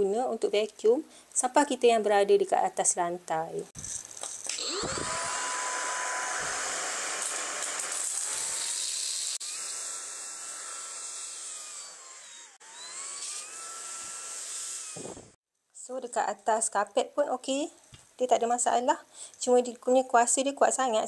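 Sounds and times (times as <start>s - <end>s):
stick vacuum motor whine: 4.5s - 15.4s.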